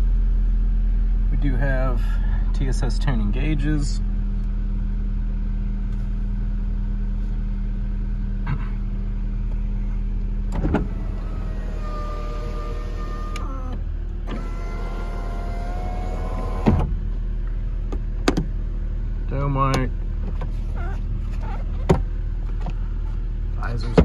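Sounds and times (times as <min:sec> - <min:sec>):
car engine idling: 0:00.0 - 0:24.0
electric motor whine: 0:10.6 - 0:16.9.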